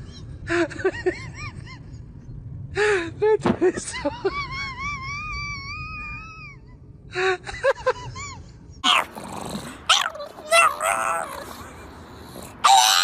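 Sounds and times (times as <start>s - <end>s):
cat yowling: 9.9s - 11.6s, 12.6s - 13.0s.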